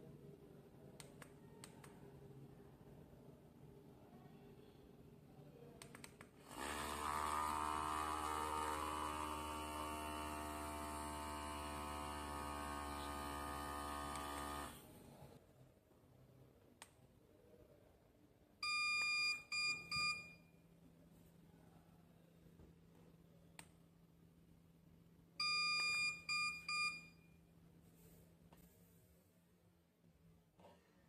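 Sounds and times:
espresso maker pump running: 6.5s - 14.8s
buzzer beeps: 18.6s - 20.5s, 25.4s - 27.3s.

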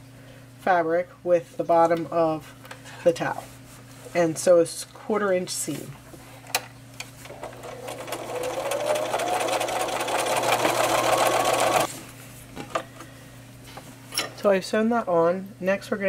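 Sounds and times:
sewing machine stitching: 7.3s - 11.9s.

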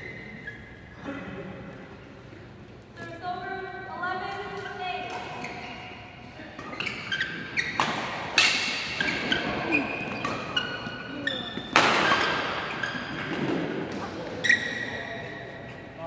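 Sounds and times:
shoes squeaking on floor: 0.0s - 1.0s, 6.6s - 15.9s
rackets hitting shuttlecock: 4.3s - 5.8s, 6.5s - 14.4s.

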